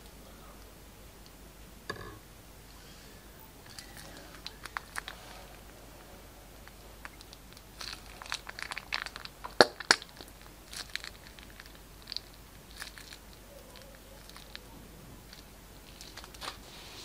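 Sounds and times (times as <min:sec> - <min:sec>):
sticky wet clicks and pops: 0:07.0 - 0:14.7.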